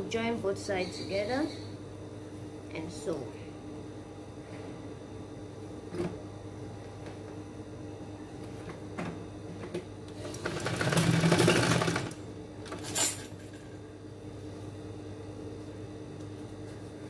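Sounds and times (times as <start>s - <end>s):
steady hum: 0.0s - 17.0s
sewing machine stitching: 10.2s - 12.2s.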